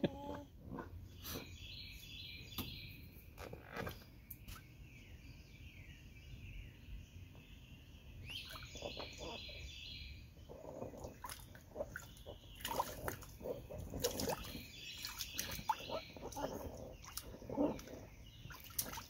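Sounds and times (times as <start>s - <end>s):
baby splashing water: 10.5s - 19.0s.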